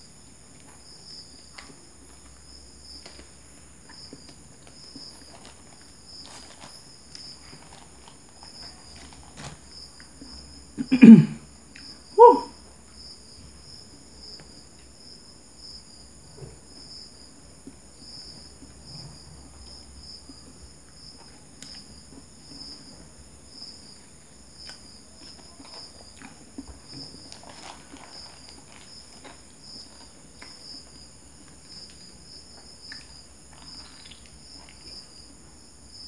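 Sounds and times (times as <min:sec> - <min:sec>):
crickets chirping: 0:00.0 - 0:36.0
soft eating noises: 0:00.0 - 0:36.0
wrapper rustling: 0:05.2 - 0:09.7, 0:27.2 - 0:30.1
man's short loud vocal sounds: 0:10.8 - 0:11.4, 0:12.2 - 0:12.5.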